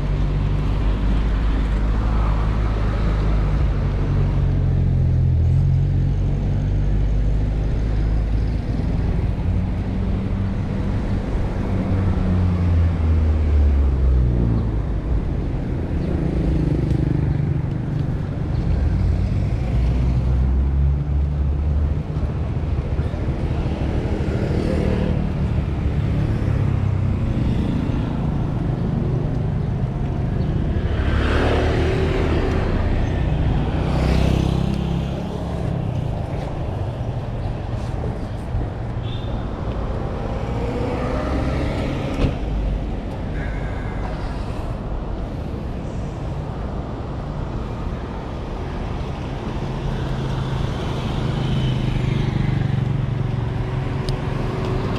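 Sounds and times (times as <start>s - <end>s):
road traffic rumble: 0.0s - 54.9s
vehicle passing: 39.8s - 47.1s.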